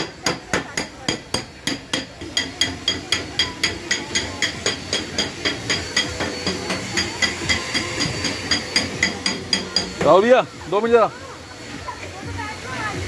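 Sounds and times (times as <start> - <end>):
hammer striking metal: 0.0 - 10.3.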